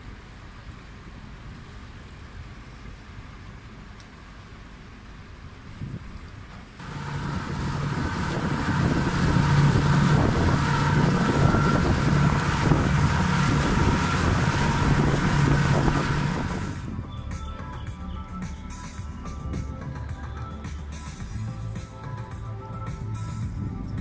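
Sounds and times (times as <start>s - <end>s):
boat engine humming: 0.0s - 24.0s
water rushing past hull: 6.8s - 17.1s.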